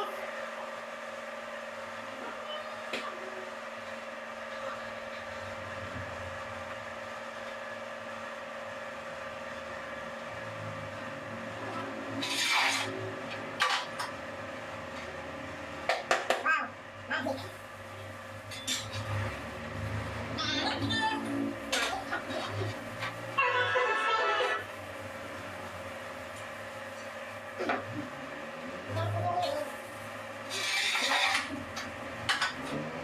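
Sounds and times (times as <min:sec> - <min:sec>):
tile cutter scoring scratch: 0:12.2 - 0:13.0, 0:30.5 - 0:31.6.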